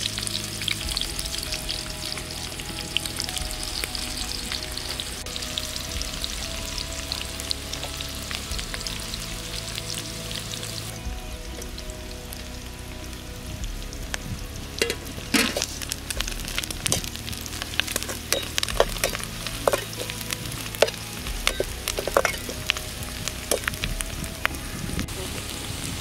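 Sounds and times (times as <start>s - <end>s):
vegetables sizzling in hot oil: 14.8s - 26.0s.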